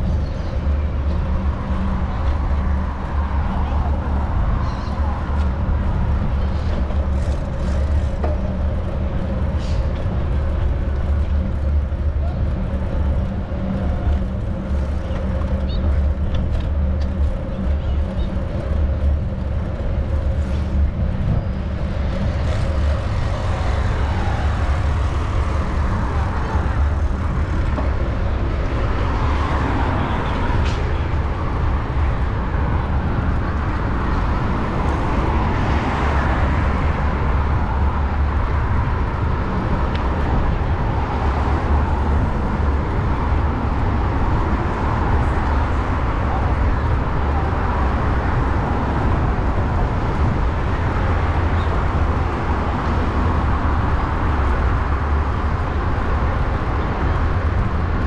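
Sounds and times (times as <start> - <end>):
road traffic: 0.0 - 58.0
wind rumbling on microphone: 0.0 - 58.0.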